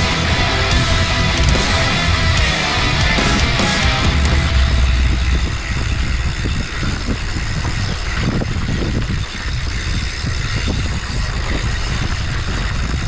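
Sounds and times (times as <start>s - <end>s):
wind buffeting microphone: 3.1s - 13.0s.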